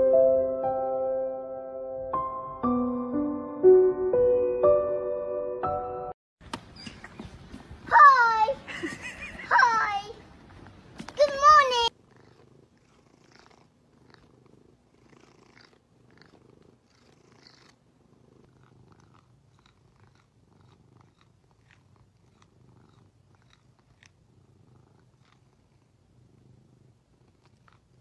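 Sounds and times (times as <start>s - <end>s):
cat purring: 11.7s - 28.0s.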